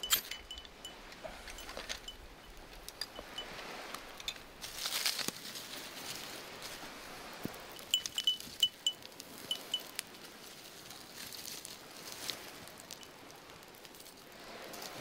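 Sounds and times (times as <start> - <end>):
high ringing chime: 0.0 - 3.6, 7.8 - 9.9
campfire crackling and popping: 7.4 - 15.0.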